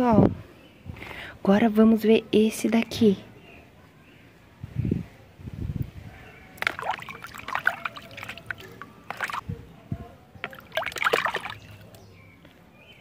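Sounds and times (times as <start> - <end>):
toy splashing in bucket of water: 6.6 - 9.5, 10.4 - 12.0.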